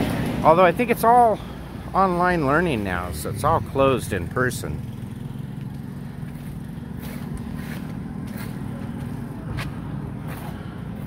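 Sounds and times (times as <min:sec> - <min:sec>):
road traffic hum: 0:00.0 - 0:11.0
footsteps on concrete: 0:05.6 - 0:11.0.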